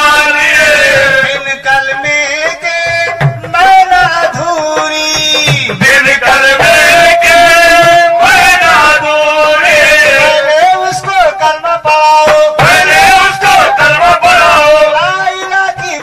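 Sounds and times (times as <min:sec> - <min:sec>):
drum strokes: 0:00.0 - 0:16.0
man singing: 0:00.0 - 0:16.0.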